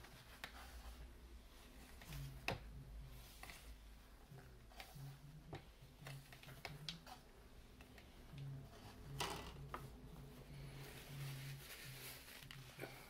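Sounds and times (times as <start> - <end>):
paper towel crinkling: 10.4 - 13.0.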